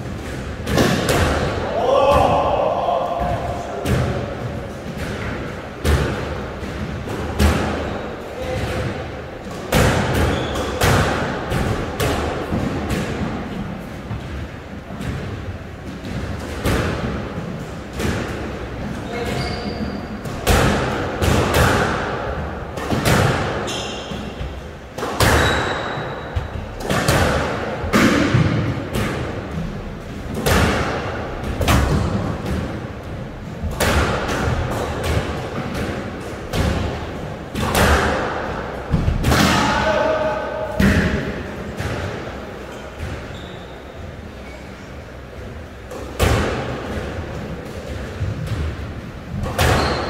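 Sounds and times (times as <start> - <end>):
shoe squeaks: 10.3 - 10.8, 19.0 - 20.2, 23.6 - 24.4, 25.4 - 26.2, 42.7 - 44.9, 49.7 - 50.0.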